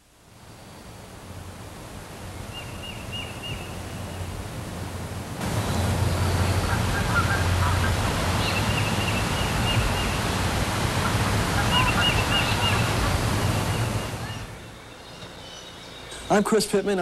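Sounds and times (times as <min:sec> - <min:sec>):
steady rushing hiss: 0:00.0 - 0:17.0
birds chirping: 0:02.3 - 0:04.4, 0:05.4 - 0:17.0.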